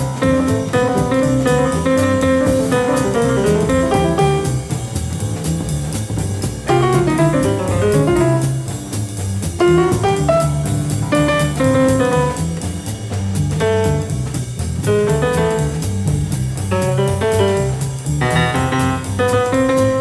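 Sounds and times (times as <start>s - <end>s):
piano solo runs: 0.0s - 4.7s
drum cymbal beat: 0.0s - 20.0s
walking double bass: 0.0s - 20.0s.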